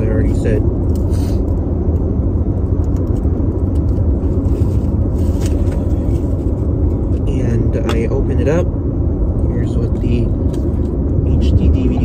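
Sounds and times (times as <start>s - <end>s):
road and engine rumble: 0.0s - 12.0s.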